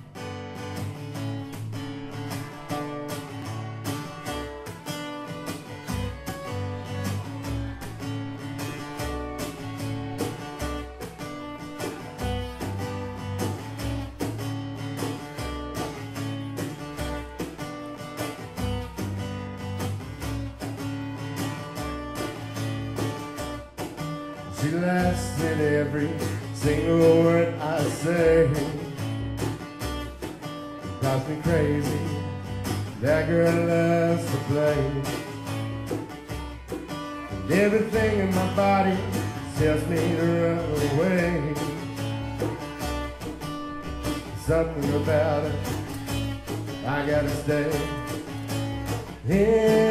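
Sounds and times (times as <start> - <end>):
strummed acoustic guitar: 0.0 - 49.9
hand drum: 0.7 - 49.9
fiddle: 1.4 - 14.4, 29.4 - 49.6.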